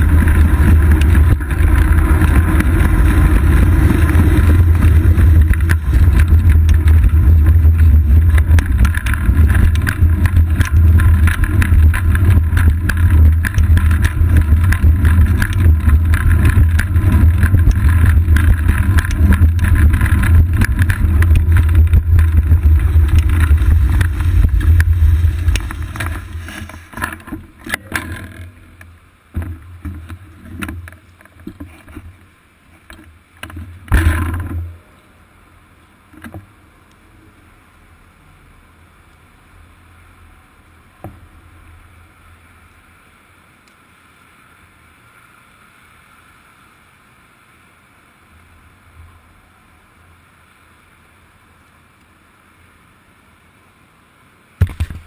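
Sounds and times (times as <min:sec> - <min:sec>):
wind buffeting and road rumble: 0:00.0 - 0:34.8, 0:54.6 - 0:55.0.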